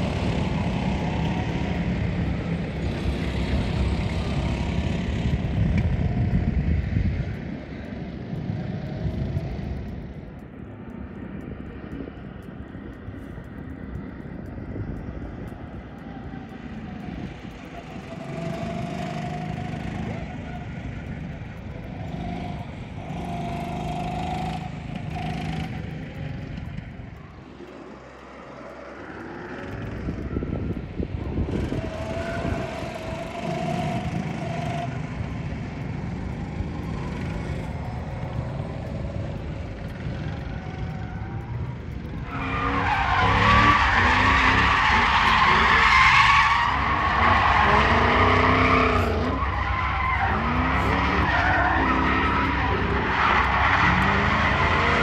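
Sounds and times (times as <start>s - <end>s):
go-kart engines: 0.0s - 55.0s
car engine revving: 17.6s - 55.0s
tyres squealing: 42.3s - 55.0s.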